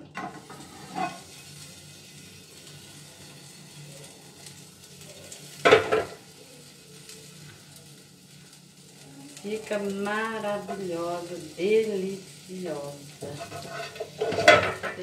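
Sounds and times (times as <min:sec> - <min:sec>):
loud cookware clatter: 0:00.0 - 0:01.3, 0:05.6 - 0:06.2, 0:13.2 - 0:15.0
faint background hum: 0:00.0 - 0:15.0
cookware handling: 0:13.2 - 0:15.0.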